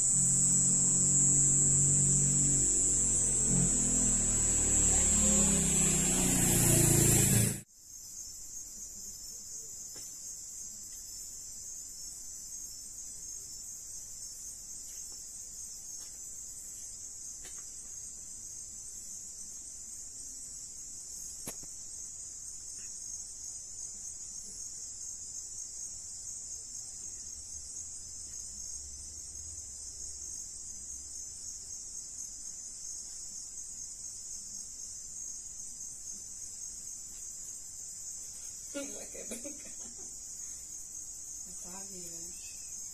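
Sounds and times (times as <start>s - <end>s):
crickets trilling: 0.0s - 42.9s.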